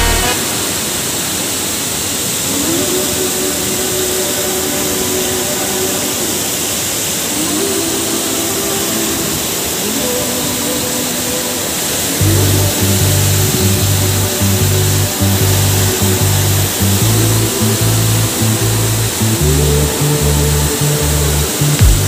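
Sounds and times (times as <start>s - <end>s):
loud low droning: 0.0s - 1.4s, 12.2s - 22.0s
river water rushing: 0.0s - 22.0s
waterfall roaring: 0.0s - 22.0s.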